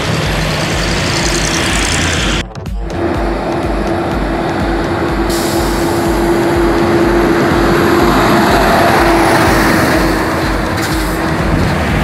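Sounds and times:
truck diesel engine passing: 0:00.0 - 0:12.0.

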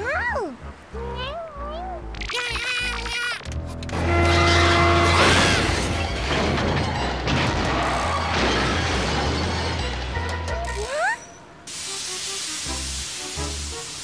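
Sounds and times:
dramatic music: 0:03.6 - 0:10.9
truck horn blast: 0:03.9 - 0:06.0
loud crash and clatter: 0:04.0 - 0:10.3.

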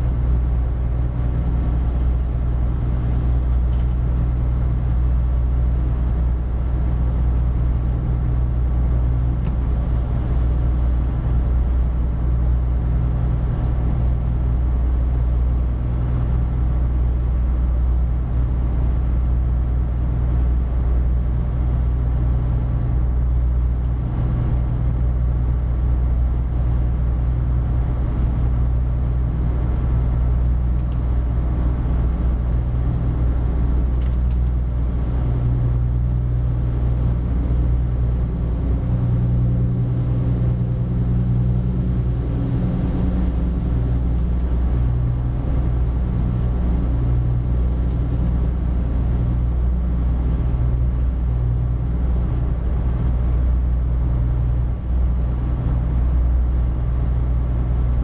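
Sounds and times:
barge diesel engine drone: 0:00.0 - 0:58.0.

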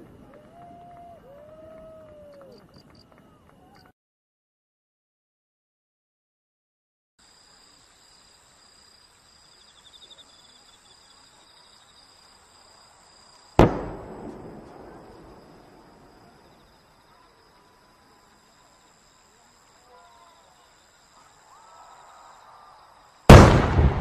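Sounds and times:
insects chirping: 0:07.2 - 0:24.0
firework bang echoing: 0:13.6 - 0:16.1, 0:23.3 - 0:24.0.

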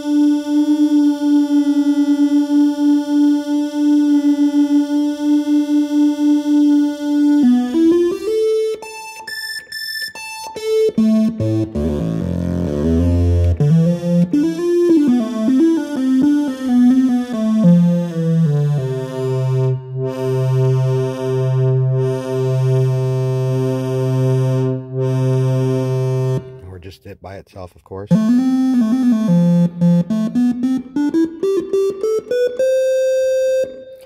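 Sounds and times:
analog synthesizer tones: 0:28.1 - 0:34.0.

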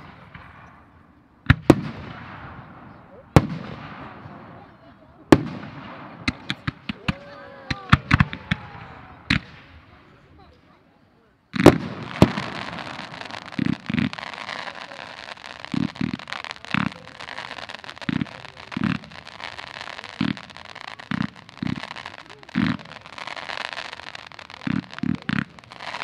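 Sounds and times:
fireworks thumping: 0:00.0 - 0:10.8, 0:11.5 - 0:26.0
smoke devices hissing and crackling: 0:11.6 - 0:26.0.

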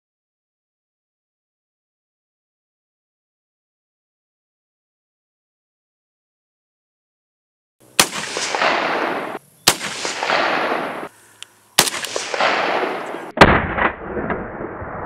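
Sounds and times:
rifle shots echoing: 0:07.8 - 0:11.2, 0:11.8 - 0:15.0.

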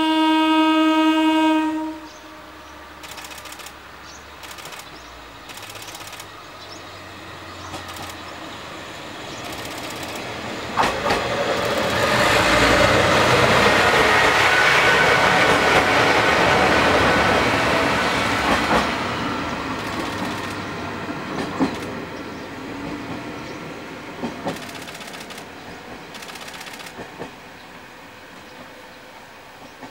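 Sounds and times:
diesel railcar passing: 0:00.0 - 0:29.9
wheels clacking over rail joints: 0:04.4 - 0:06.3, 0:07.6 - 0:08.3, 0:09.3 - 0:14.5, 0:18.4 - 0:19.0, 0:19.6 - 0:22.2, 0:24.2 - 0:27.4.

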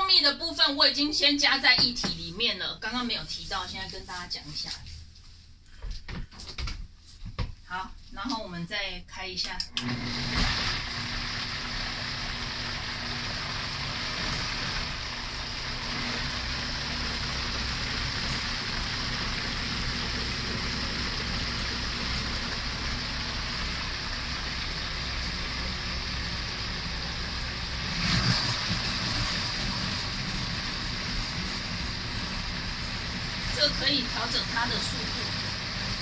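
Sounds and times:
blender motor whirring: 0:09.7 - 0:36.0.

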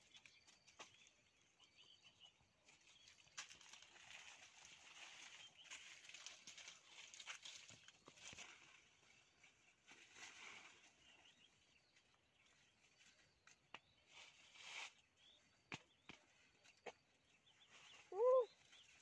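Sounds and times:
faint bird chirps: 0:00.0 - 0:19.0
rustling of dry leaves: 0:02.6 - 0:13.3, 0:14.0 - 0:15.2.

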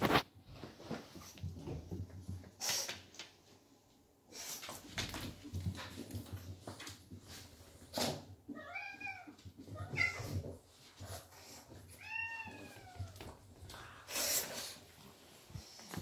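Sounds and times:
cat meowing: 0:12.0 - 0:13.2.

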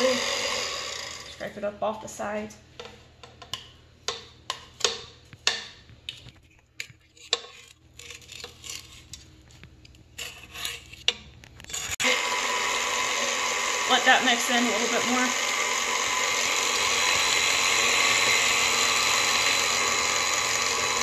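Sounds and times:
stand mixer running: 0:00.0 - 0:01.4, 0:12.0 - 0:21.0
spatula scraping metal bowl: 0:06.3 - 0:09.3, 0:10.1 - 0:12.1.

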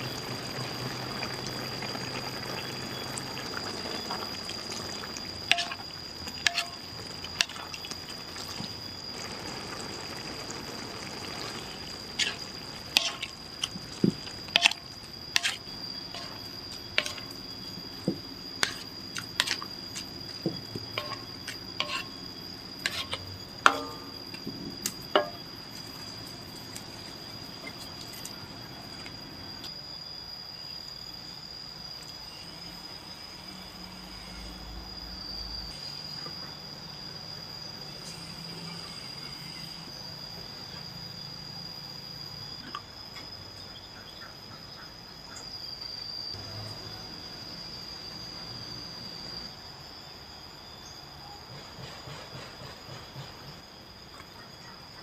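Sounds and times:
sauce bubbling in a wok: 0:00.0 - 0:33.7
ladle scraping and knocking wok: 0:03.9 - 0:08.8, 0:11.2 - 0:26.0.

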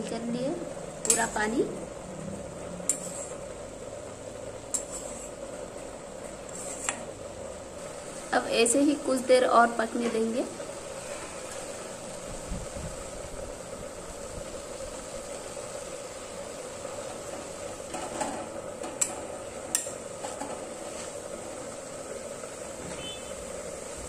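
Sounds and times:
leaves sizzling in a pan: 0:00.0 - 0:24.0.

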